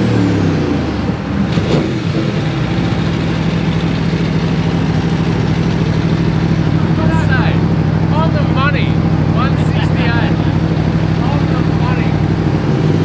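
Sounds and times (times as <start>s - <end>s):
motorcycle engine idling: 1.2s - 13.0s.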